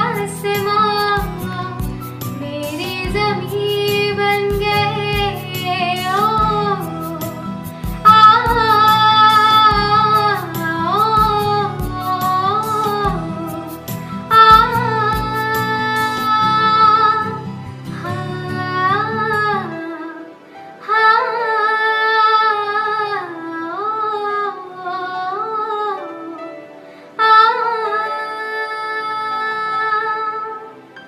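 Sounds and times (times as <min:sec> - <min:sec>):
low musical accompaniment: 0:00.0 - 0:31.0
woman singing slowly: 0:27.2 - 0:30.8.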